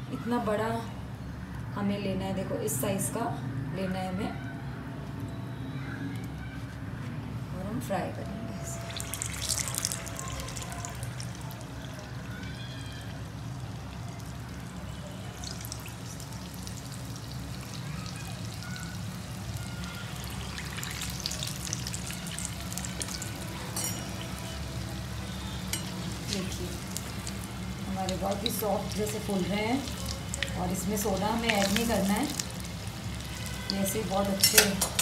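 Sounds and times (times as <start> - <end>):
batter deep-frying in hot oil: 7.6 - 35.0.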